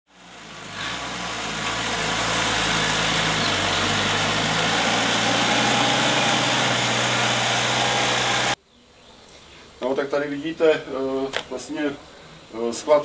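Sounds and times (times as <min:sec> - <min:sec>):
tractor engine running: 0:00.1 - 0:08.6.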